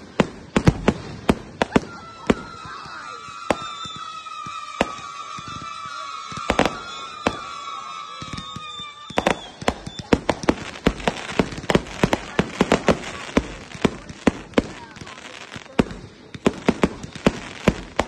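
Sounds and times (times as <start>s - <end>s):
high whistling firework tone: 0.0s - 13.7s
firework bangs and crackles: 0.0s - 18.0s.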